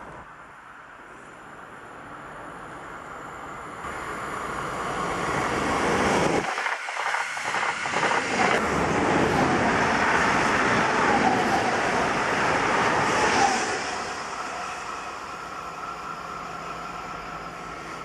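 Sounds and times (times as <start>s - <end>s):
electric train passing: 0.3s - 18.0s
wheels rushing on rails: 3.6s - 18.0s.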